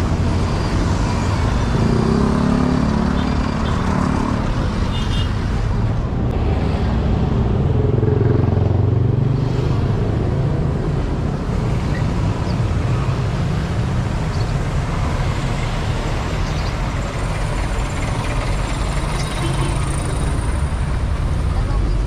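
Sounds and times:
road traffic engine rumble: 0:00.0 - 0:22.0.

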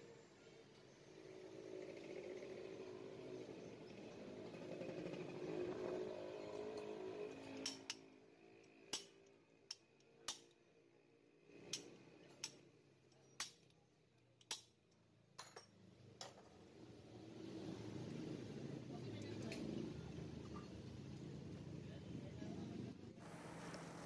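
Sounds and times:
metallic clicks and taps: 0:08.6 - 0:10.6, 0:14.4 - 0:15.7.

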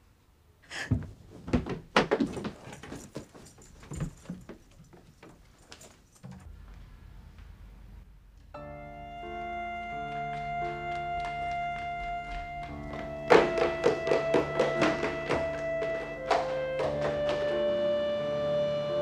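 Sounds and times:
low hum: 0:06.3 - 0:12.6
soft background music: 0:08.5 - 0:19.0
knocks and thumps: 0:12.0 - 0:17.6.

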